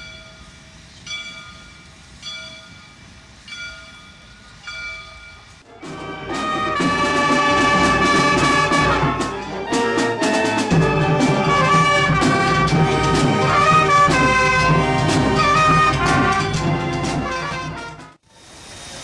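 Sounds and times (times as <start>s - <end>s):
wind band playing a tune: 5.7s - 18.2s
bass drum and percussion strokes: 5.8s - 18.2s.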